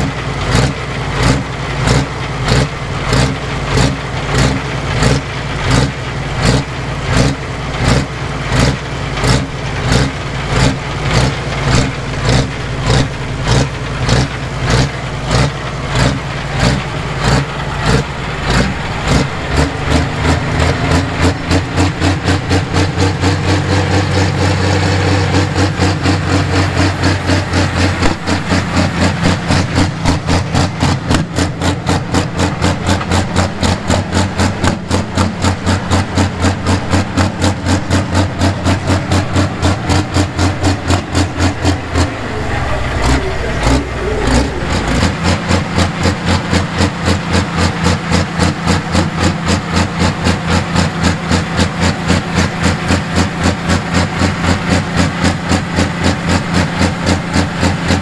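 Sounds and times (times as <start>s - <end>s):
diesel engine idling with lope: 0.0s - 58.0s.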